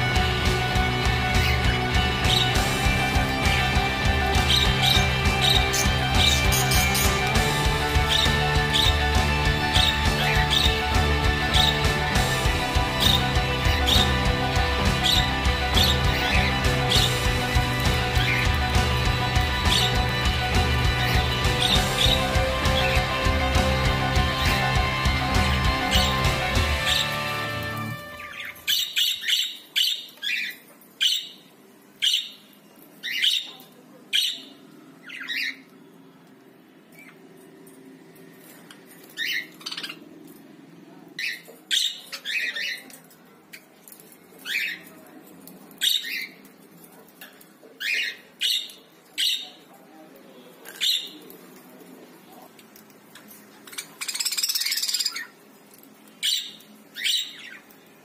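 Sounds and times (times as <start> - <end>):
budgerigars chirping: 1.1 - 31.4, 53.8 - 55.3
harsh bird squawk: 1.3 - 31.4.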